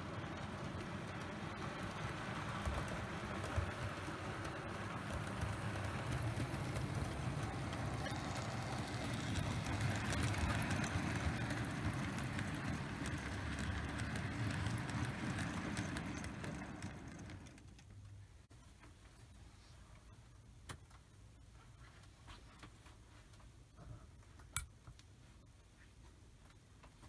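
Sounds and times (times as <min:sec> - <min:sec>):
light even ticking of wheels: 0:00.0 - 0:18.2
model train rumbling on track: 0:00.0 - 0:18.2.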